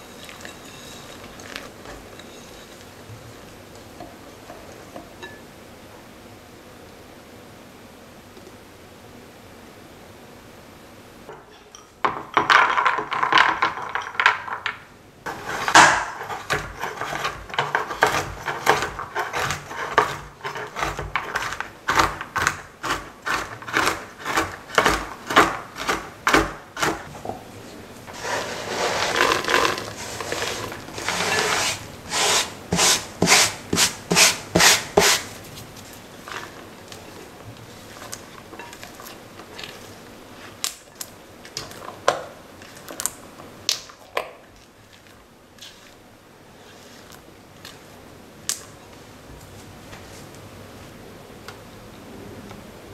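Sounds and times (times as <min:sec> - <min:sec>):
knife chopping on plastic board: 0:15.5 - 0:27.1.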